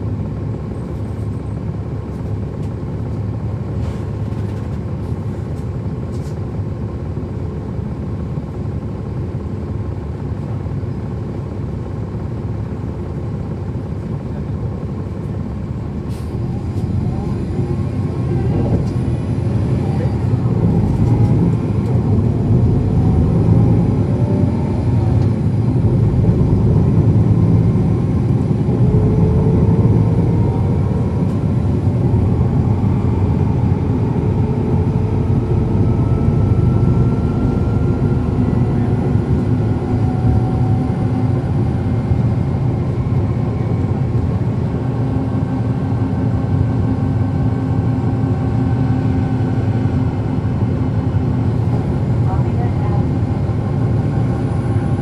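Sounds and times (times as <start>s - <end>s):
bus diesel engine rumble: 0.0s - 55.0s
transmission whine: 16.3s - 50.8s.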